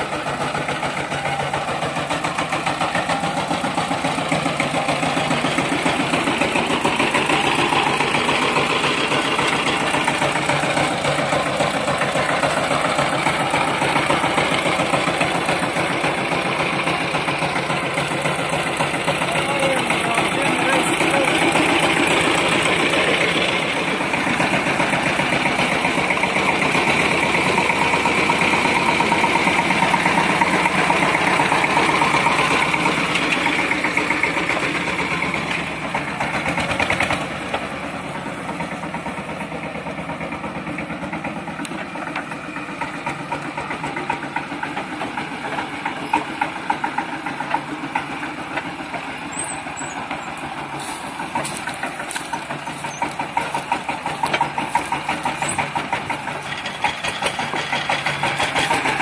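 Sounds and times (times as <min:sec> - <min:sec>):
small tractor engine running: 0:00.0 - 0:59.0
knocks and clatters: 0:38.6 - 0:59.0.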